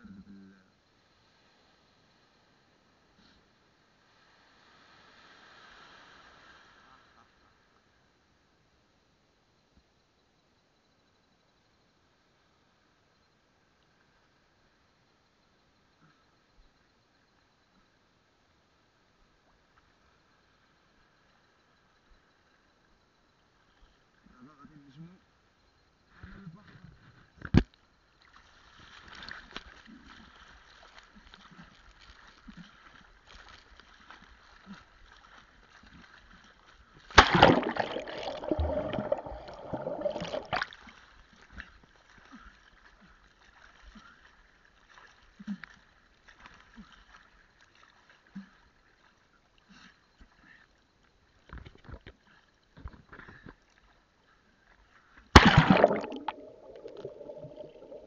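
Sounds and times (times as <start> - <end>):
sea water splashing: 28.2 - 41.6, 55.4 - 58.0
muffled underwater sound: 37.2 - 40.6, 55.4 - 58.0.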